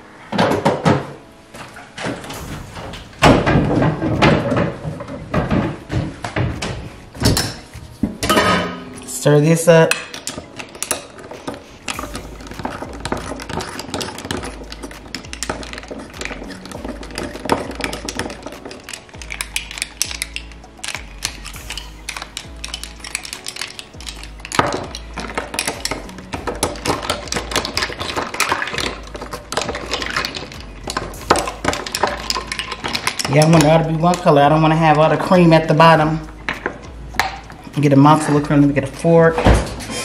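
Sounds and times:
background music with low bass: 0.0 - 40.0
spoon and ice clinking in glass: 8.2 - 38.5.

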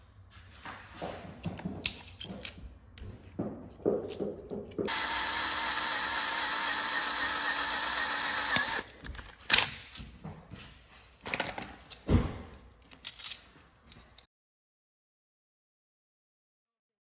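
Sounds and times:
electric drill drilling metal: 4.9 - 8.9.

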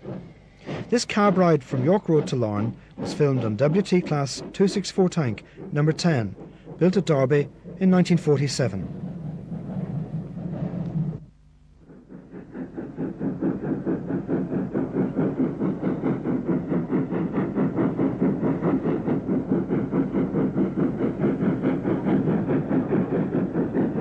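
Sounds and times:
steam locomotive exhaust beating: 0.0 - 24.0.

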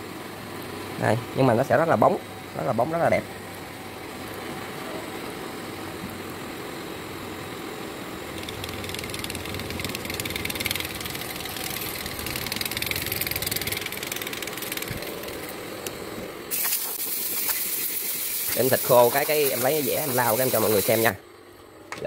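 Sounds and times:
milling machine hum: 0.0 - 21.8
hiss of rolling balls and coolant: 16.4 - 21.2
sudden loud hiss: 16.5 - 21.2.

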